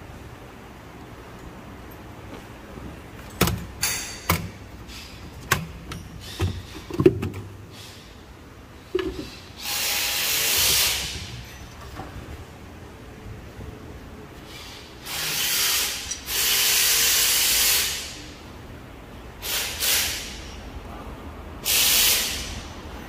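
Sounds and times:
metal tools clanking: 0:03.2 - 0:07.1, 0:11.1 - 0:12.2
steady hiss: 0:07.6 - 0:11.6.

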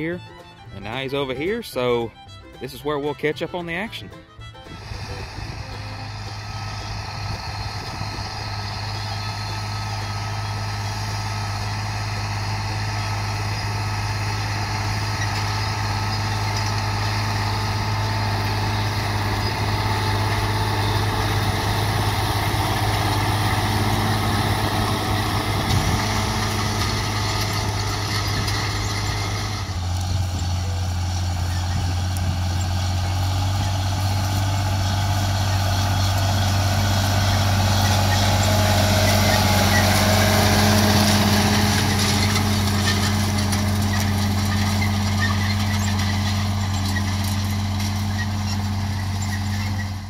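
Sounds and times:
tractor diesel engine running: 0:00.0 - 0:50.0.

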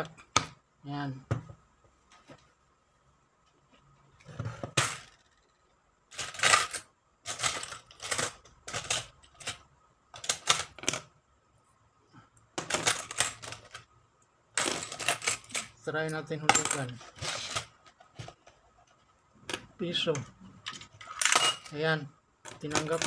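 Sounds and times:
coins clinking in a plastic tub: 0:04.7 - 0:05.2, 0:06.1 - 0:09.6, 0:10.2 - 0:11.1, 0:12.6 - 0:13.9, 0:14.6 - 0:17.8, 0:20.8 - 0:21.8, 0:22.5 - 0:23.0.

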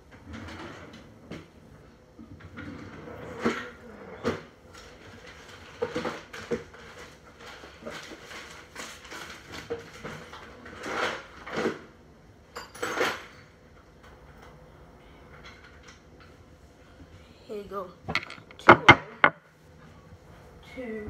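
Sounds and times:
hard objects knocking and clattering: 0:18.0 - 0:19.4
scraping handling noises: 0:18.1 - 0:19.4.

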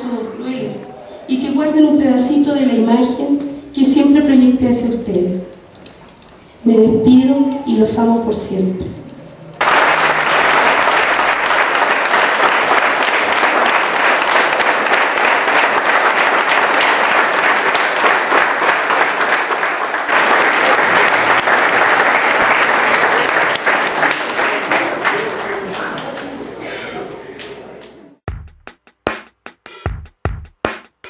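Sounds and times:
audience clapping: 0:09.6 - 0:26.4.

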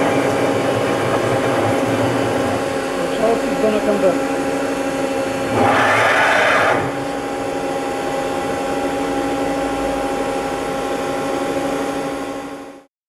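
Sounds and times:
hydraulic pump humming: 0:00.0 - 0:12.6
hydraulic ram rushing down: 0:05.4 - 0:07.3.

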